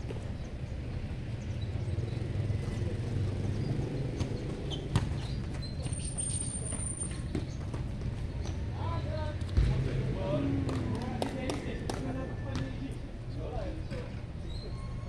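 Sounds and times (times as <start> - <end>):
basketball bouncing on concrete: 3.9 - 8.6.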